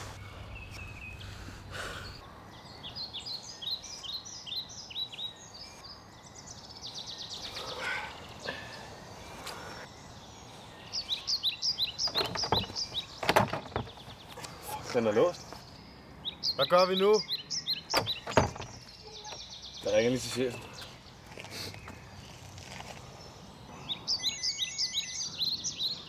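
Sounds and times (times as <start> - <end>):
outdoor background noise: 0.0 - 26.0
small birds singing: 0.0 - 26.0
locked door handle rattling: 18.0 - 18.8.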